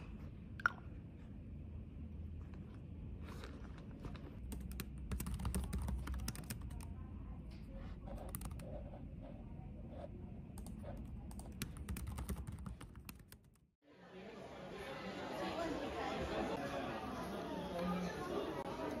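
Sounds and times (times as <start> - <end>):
laptop keyboard typing: 4.5 - 6.9, 8.1 - 8.8, 10.6 - 13.6.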